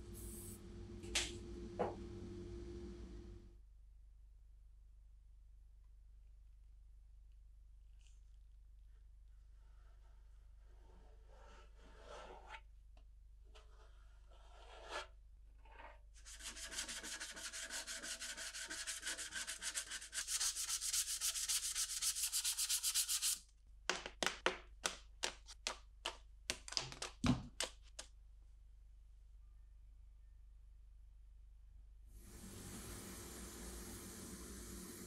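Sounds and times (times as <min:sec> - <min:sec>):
hand sanding with sandpaper: 0:16.2 - 0:23.4.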